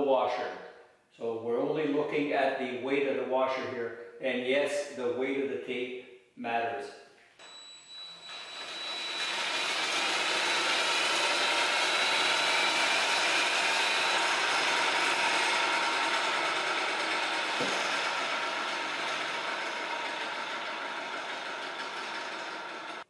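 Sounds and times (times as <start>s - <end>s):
cordless drill whirring: 7.4s - 23.0s
spinning blade rushing: 8.3s - 23.0s.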